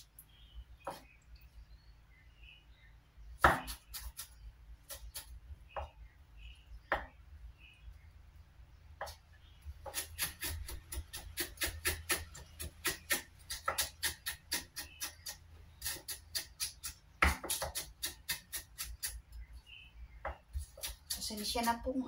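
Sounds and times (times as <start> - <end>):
cleaver chopping on wooden board: 3.4 - 4.3, 6.9 - 7.1, 9.8 - 19.2, 20.2 - 21.3.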